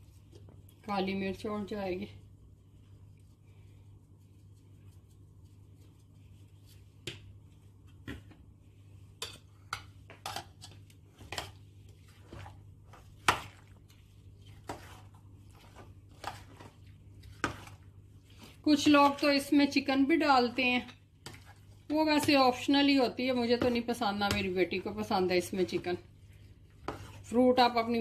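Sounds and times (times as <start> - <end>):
metal spoon scraping a dish: 14.4 - 17.8, 26.8 - 27.4.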